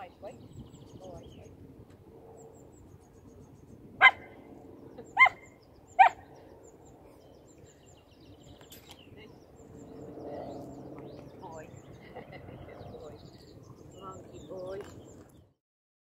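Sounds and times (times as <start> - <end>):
dog barking: 4.0 - 4.3, 5.2 - 5.4, 6.0 - 6.2.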